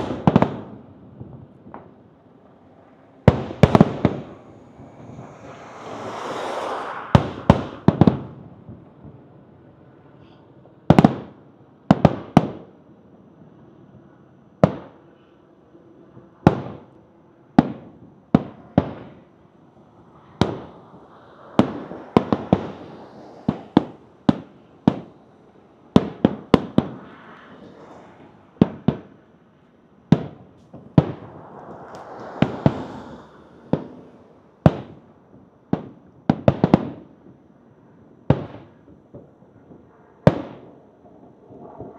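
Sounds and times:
fireworks bangs with echo: 0.0 - 5.6, 7.1 - 9.6, 10.9 - 12.8, 14.6 - 15.1, 16.4 - 16.9, 17.5 - 19.4, 20.3 - 20.9, 21.6 - 25.2, 25.9 - 27.0, 28.6 - 29.2, 30.0 - 37.5, 38.2 - 41.9
fireworks hissing: 30.6 - 34.4.

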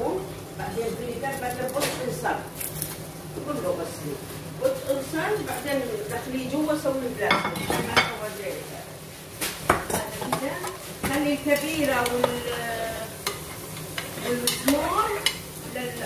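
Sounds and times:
food sizzling in pot: 0.0 - 16.0.

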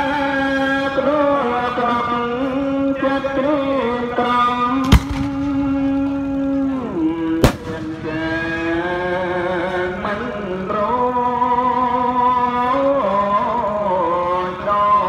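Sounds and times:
sharp bang: 4.8 - 6.0, 7.4 - 8.7.

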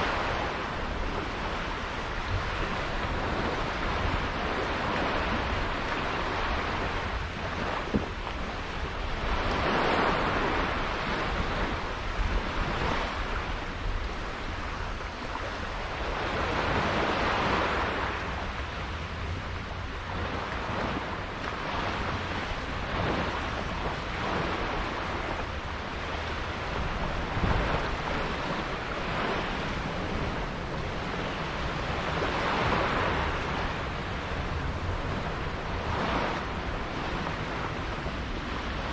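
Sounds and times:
sea water washing and surging: 0.0 - 38.9
wind buffeting microphone: 0.0 - 38.9.

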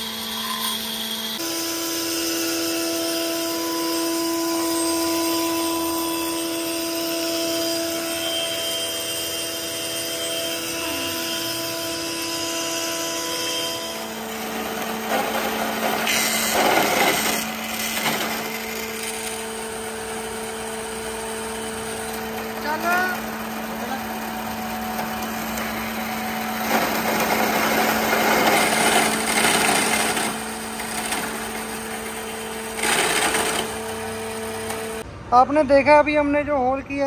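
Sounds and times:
woodworking machine motor hum: 0.0 - 35.0
chain mortiser cutting timber: 3.6 - 35.0.

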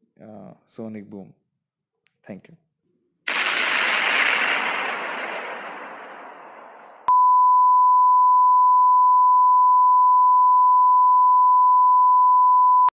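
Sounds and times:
steady test tone beep: 7.1 - 12.9.

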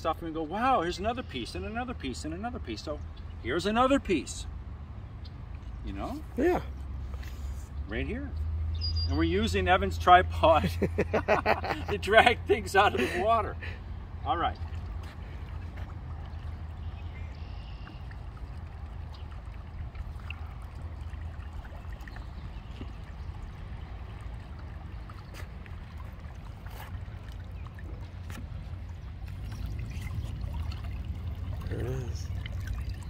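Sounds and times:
creek water splashing: 9.4 - 33.0.

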